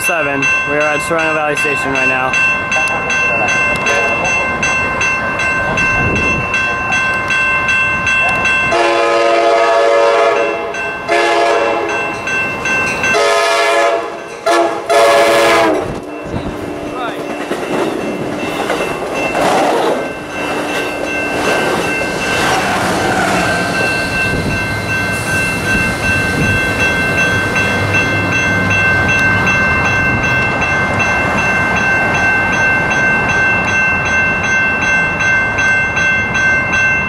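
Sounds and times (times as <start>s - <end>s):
crossing warning bell ringing: 0.0s - 37.0s
diesel locomotive rumble: 0.2s - 34.6s
train wheels clattering: 15.5s - 33.1s.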